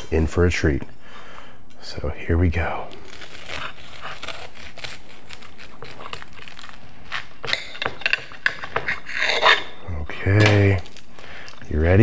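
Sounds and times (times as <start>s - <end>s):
knife cutting crispy crust: 3.0s - 9.6s.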